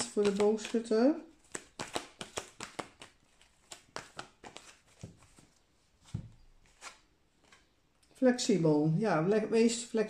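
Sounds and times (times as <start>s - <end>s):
cards being shuffled: 0.0s - 7.8s.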